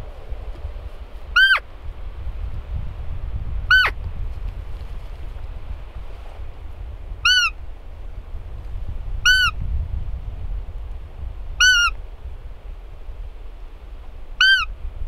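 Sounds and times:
high-pitched deer call peeps: 1.3s - 1.6s, 3.7s - 4.0s, 7.2s - 7.6s, 11.6s - 12.0s, 14.4s - 14.7s.

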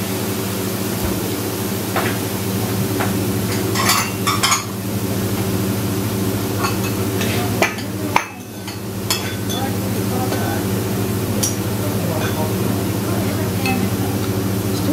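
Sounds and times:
steady low hum: 0.0s - 14.9s
food sizzling on a griddle: 0.1s - 12.6s
bowls and chopsticks clinking: 3.5s - 4.8s, 6.6s - 10.6s, 11.4s - 12.6s.

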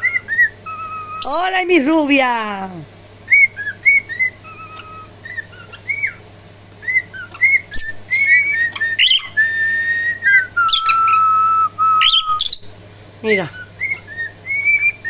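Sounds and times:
cockatiel whistling: 0.0s - 1.4s, 3.3s - 6.2s, 6.8s - 12.7s, 13.4s - 15.0s.

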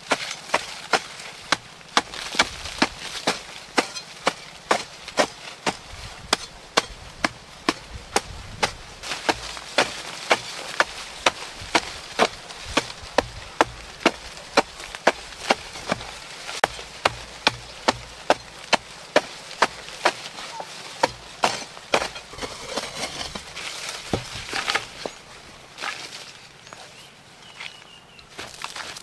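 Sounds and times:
digging tool striking stony soil: 0.0s - 26.0s
soil scraping and rustling: 0.0s - 29.0s.

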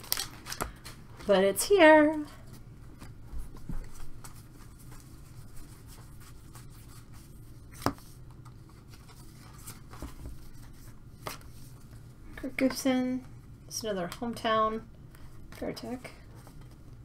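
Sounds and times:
trading cards sliding and rubbing: 3.4s - 12.0s.

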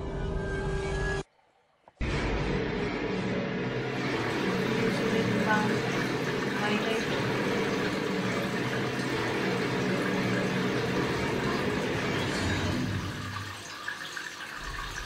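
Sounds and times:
running water: 3.8s - 15.0s.

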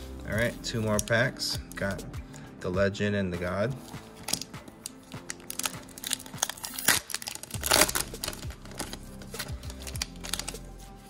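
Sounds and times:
foil wrapper crinkling and tearing: 3.9s - 10.9s.

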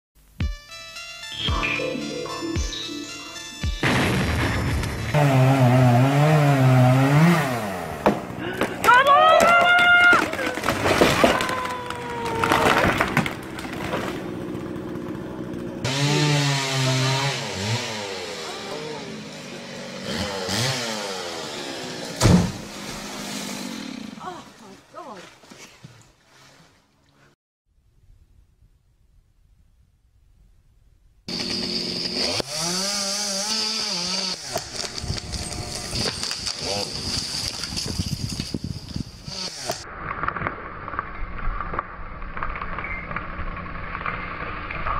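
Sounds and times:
wavering pitched drone: 1.3s - 3.9s, 34.6s - 36.3s
tree crashing and splintering: 3.8s - 16.9s, 34.5s - 38.6s
chainsaw running: 4.9s - 8.7s, 11.9s - 24.4s, 31.3s - 39.9s.

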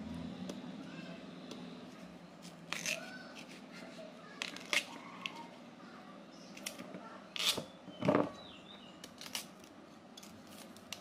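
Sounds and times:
cassava skin peeling crackles: 9.0s - 11.0s.

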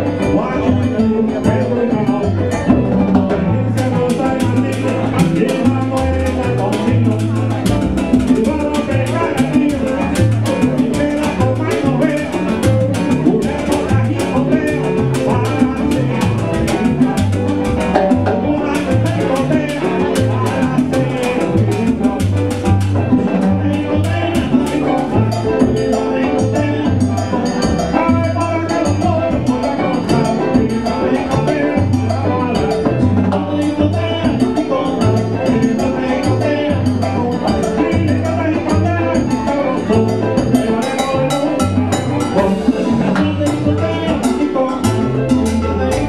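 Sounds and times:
bass line: 0.0s - 46.0s
congas and timbales: 0.0s - 46.0s
dance band playing: 0.0s - 46.0s
keyboard: 0.0s - 46.0s.

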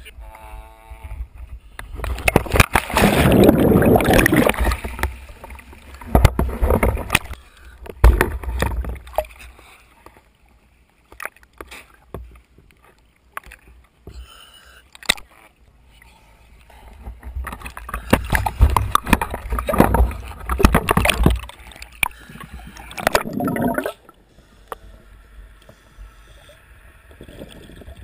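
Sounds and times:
water rushing and bubbling: 2.0s - 7.4s, 17.4s - 24.2s
water sloshing: 2.1s - 10.3s, 17.0s - 24.2s.

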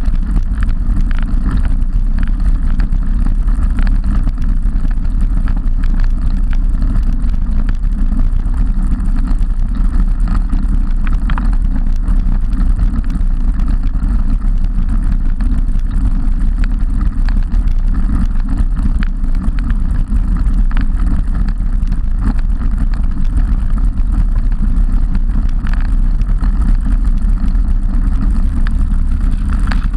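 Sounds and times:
tyre and road noise rumble: 0.0s - 29.9s
wind buffeting microphone: 21.9s - 29.9s.

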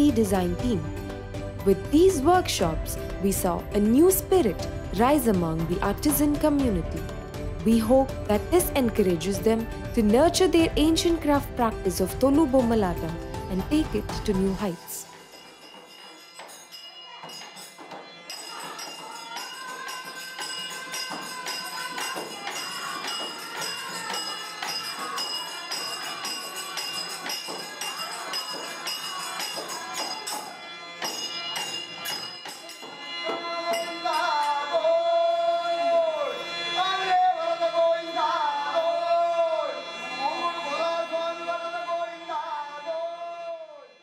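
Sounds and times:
rapid jingling percussion: 0.0s - 35.1s
man singing: 33.2s - 44.0s.

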